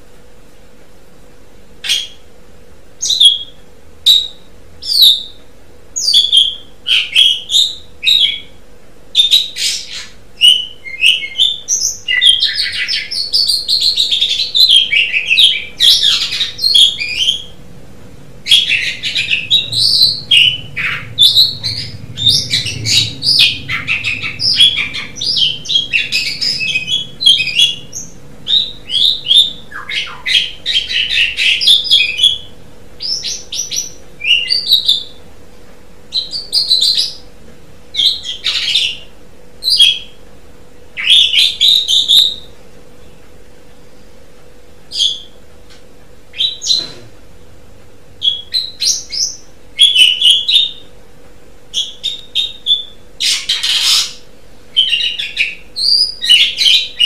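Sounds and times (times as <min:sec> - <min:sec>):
starling singing: 0:03.0 - 0:05.4, 0:06.0 - 0:08.6, 0:09.2 - 0:17.6, 0:18.4 - 0:35.2, 0:36.1 - 0:37.3, 0:37.9 - 0:40.2, 0:41.0 - 0:42.5, 0:48.2 - 0:50.9, 0:51.7 - 0:57.0.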